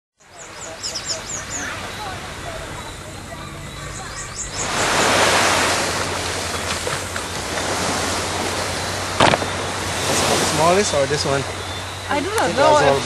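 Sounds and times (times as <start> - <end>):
surf breaking on a beach: 0.5 - 13.0.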